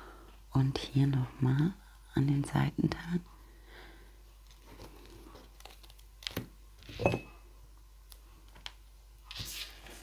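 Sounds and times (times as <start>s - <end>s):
paper rustle: 9.3s - 10.0s.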